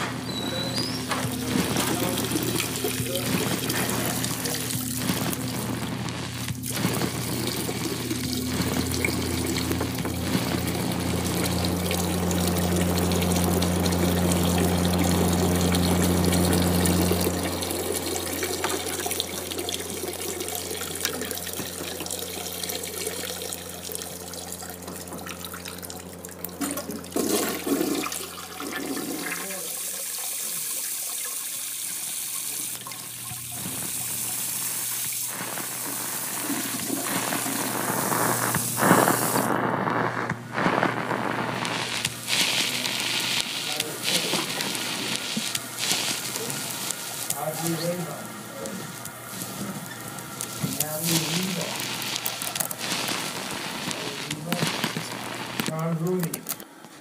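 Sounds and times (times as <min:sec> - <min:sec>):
toilet flushing: 0:00.0 - 0:05.8, 0:06.5 - 0:39.5
steady low hum: 0:00.0 - 0:29.9, 0:32.7 - 0:56.2.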